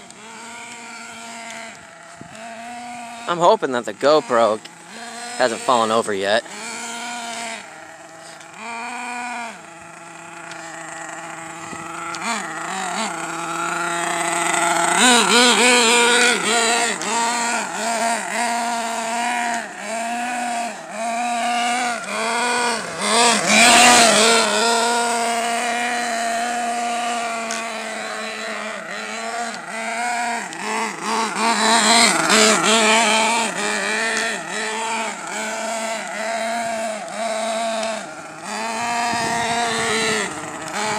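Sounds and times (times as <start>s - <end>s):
small nitro engine whining: 0.0s - 40.9s.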